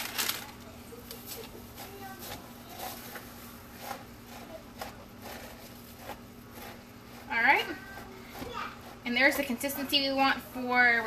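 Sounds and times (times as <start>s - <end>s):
spoon scraping plastic bowl: 1.4s - 9.6s.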